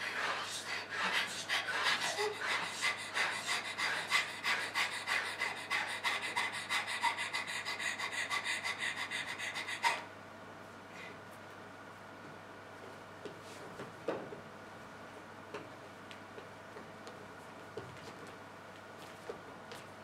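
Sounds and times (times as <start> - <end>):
people panting fast: 0.0 - 10.1.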